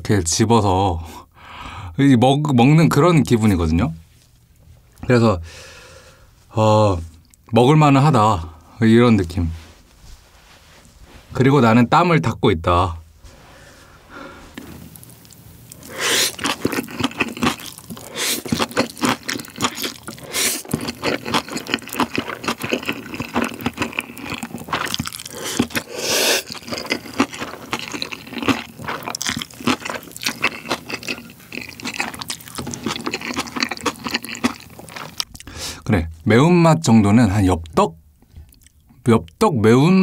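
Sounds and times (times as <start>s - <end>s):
wet chewing: 14.5s - 35.5s
slurping noodles: 15.7s - 35.8s.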